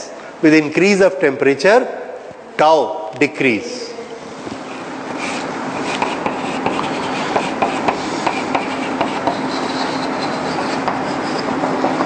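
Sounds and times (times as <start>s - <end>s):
chalk scratching on blackboard: 4.6s - 12.0s.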